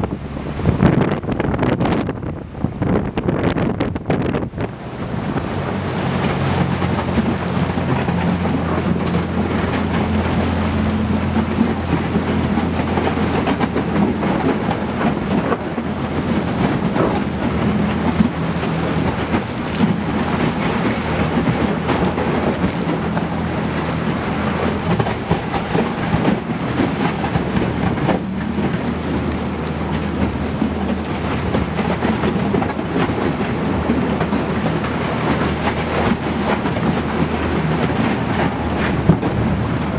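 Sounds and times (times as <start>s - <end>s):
boat motor humming: 0.0s - 39.9s
ice crackling against hull: 4.0s - 39.9s.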